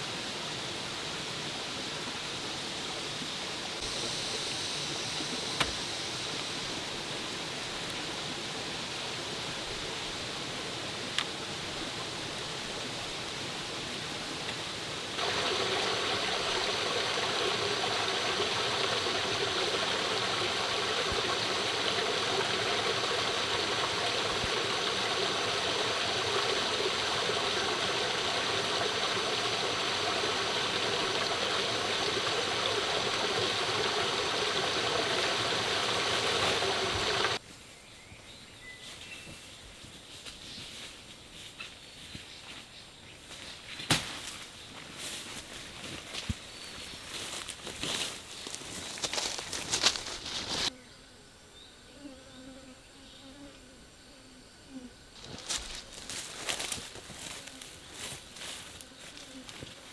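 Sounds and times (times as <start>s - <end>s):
running water rushing: 0.0s - 37.4s.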